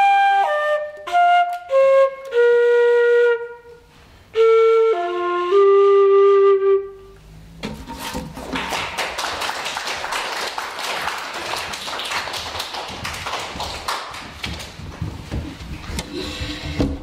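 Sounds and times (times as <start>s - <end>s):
audience applauding: 8.4s - 14.8s.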